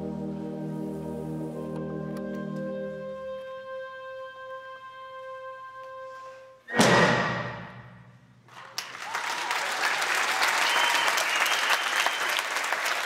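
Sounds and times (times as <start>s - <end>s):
applause: 8.5s - 13.0s.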